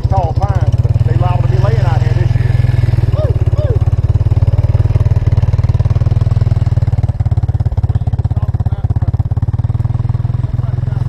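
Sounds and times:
atv engine idling: 0.0 - 11.0.

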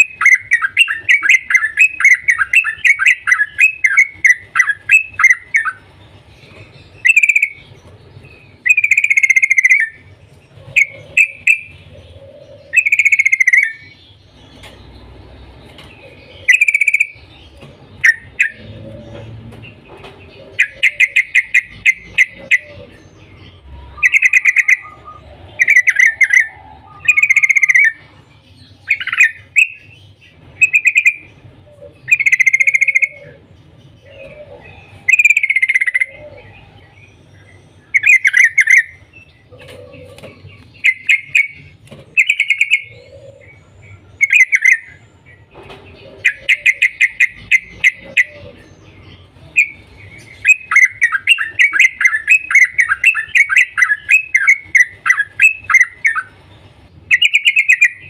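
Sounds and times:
bird chattering calls: 0.0 - 58.0.

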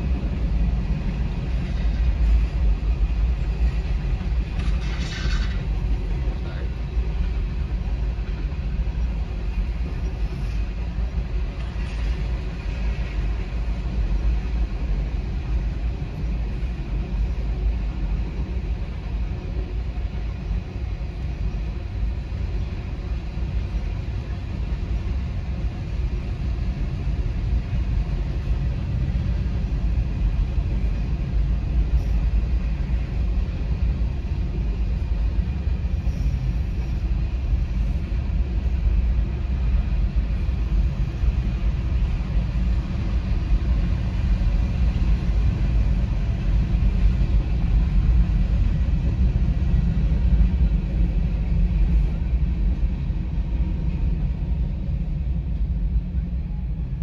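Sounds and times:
muffled freight train rumble: 0.0 - 57.0.

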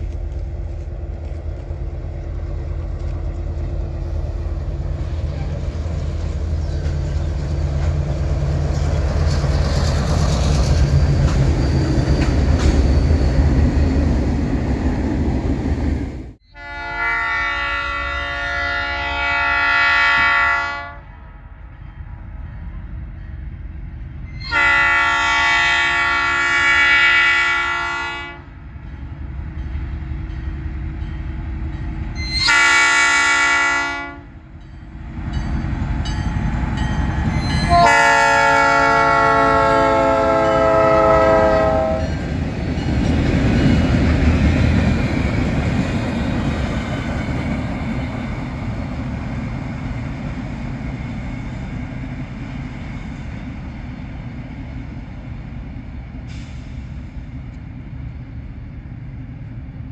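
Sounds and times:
locomotive horn blasts: 16.5 - 21.1, 24.4 - 28.5, 32.2 - 34.4, 37.5 - 42.2.

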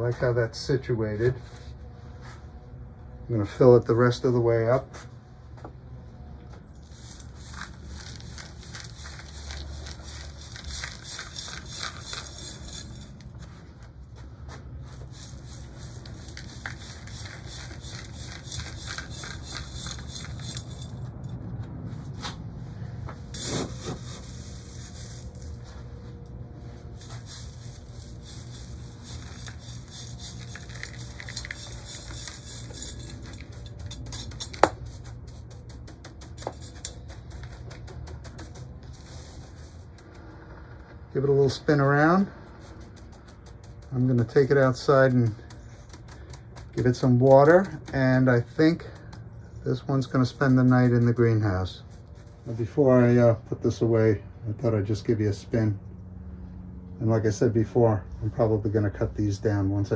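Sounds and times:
soil scooped and poured: 6.8 - 13.3, 14.9 - 21.0, 23.3 - 49.1.

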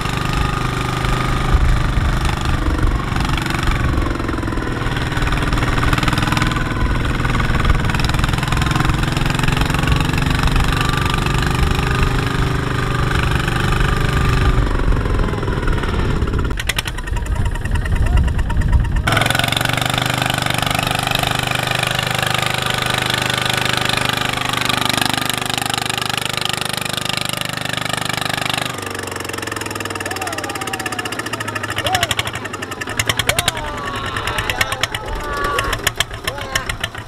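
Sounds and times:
diesel engine knocking clatter: 0.0 - 37.0
wheels spinning through mud: 0.0 - 37.0.

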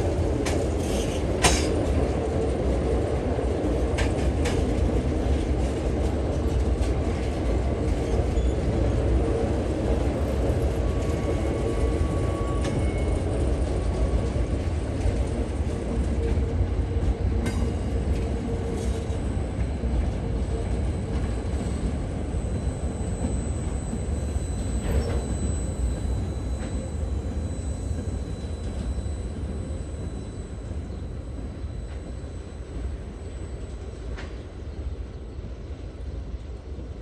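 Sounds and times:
train wheels rumbling on rail: 0.0 - 37.0.

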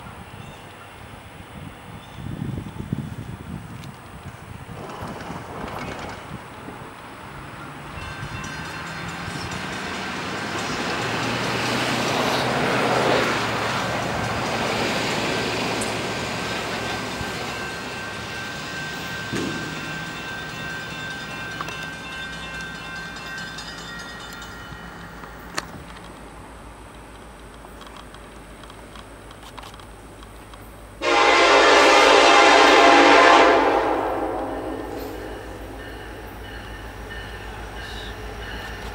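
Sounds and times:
train wheel noise: 2.4 - 38.9
locomotive engine drone: 4.7 - 38.9
train air horn blast: 31.0 - 35.8.

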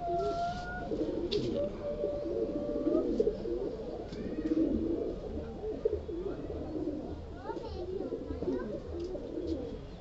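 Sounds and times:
pigeons cooing: 0.0 - 10.0.

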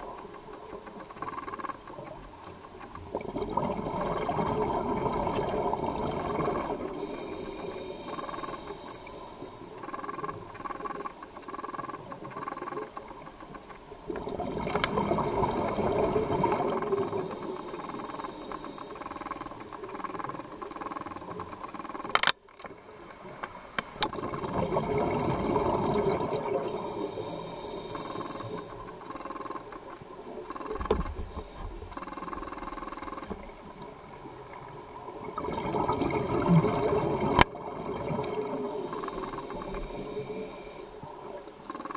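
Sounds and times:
exhaled bubbles gushing: 3.0 - 7.0, 14.0 - 17.3, 24.1 - 27.0, 33.4 - 40.1
regulator inhalation hiss: 6.9 - 9.9, 16.8 - 19.6, 26.6 - 28.9, 31.2 - 32.9, 38.6 - 41.0.

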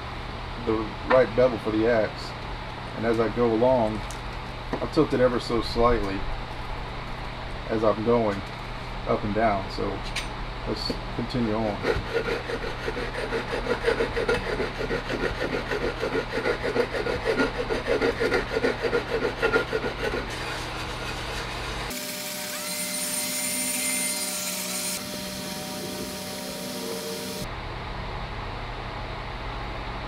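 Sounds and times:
hatchet blade rasping on sanding belt: 11.6 - 27.4.

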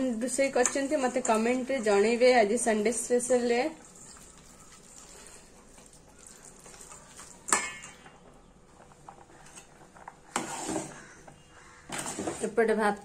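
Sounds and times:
spatula scraping metal pot: 9.4 - 12.7.

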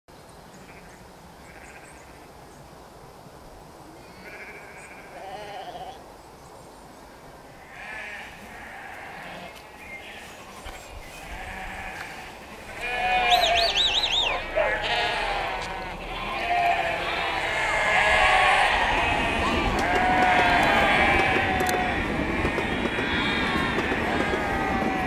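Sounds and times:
sheep bleating: 4.1 - 6.0, 7.7 - 10.4, 11.2 - 25.0.

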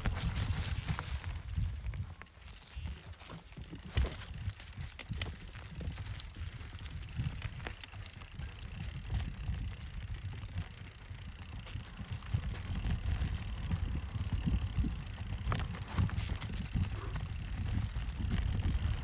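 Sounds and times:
bike rattling clicks and knocks: 0.0 - 19.0
bike riding low rumble: 0.0 - 19.0.

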